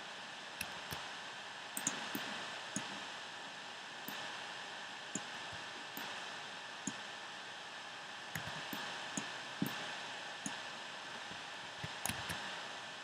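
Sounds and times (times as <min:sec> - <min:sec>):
microphone hiss: 0:00.0 - 0:13.0
computer mouse clicks: 0:01.8 - 0:03.0, 0:08.3 - 0:09.8, 0:11.8 - 0:12.5.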